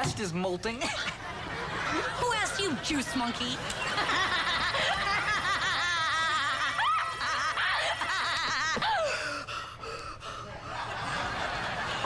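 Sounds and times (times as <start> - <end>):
young woman giggling: 3.8 - 9.4.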